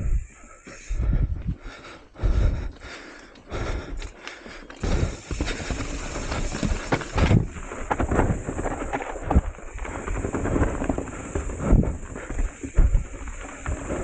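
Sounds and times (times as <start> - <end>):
bike rattling over rocks: 2.8 - 14.0.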